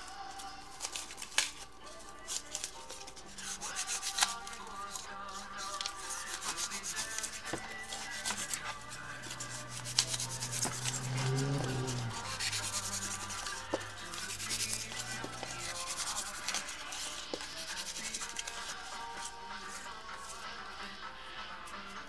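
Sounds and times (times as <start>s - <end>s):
faint background music: 0.0s - 22.0s.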